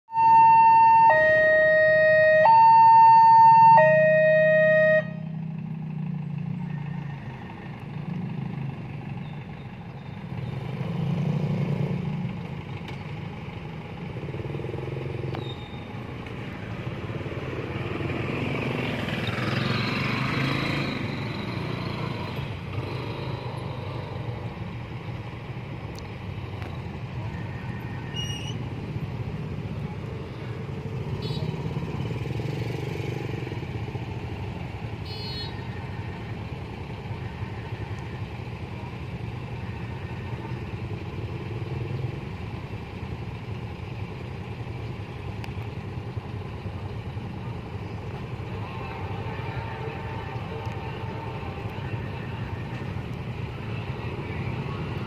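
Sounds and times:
level-crossing two-tone alarm: 0.1 - 5.2
traffic passing: 0.1 - 55.0
motorcycle engines idling: 3.8 - 10.9, 12.0 - 19.5, 21.1 - 55.0.

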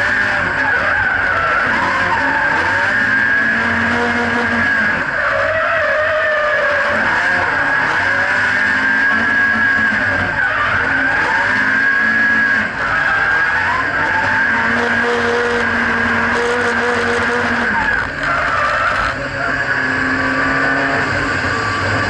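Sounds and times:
car engine revving: 0.0 - 22.0.

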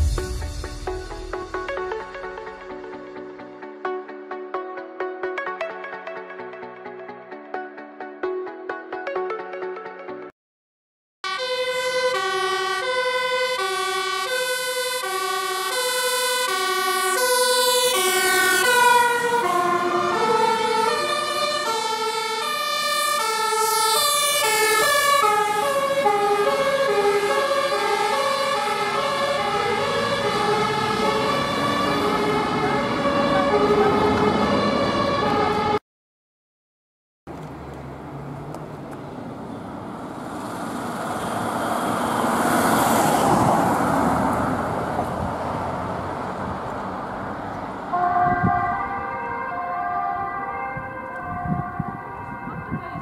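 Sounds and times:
truck engine: 0.0 - 2.9, 16.2 - 35.8, 37.3 - 48.0
two-tone fire engine sirens: 11.2 - 35.8, 39.5 - 53.0.

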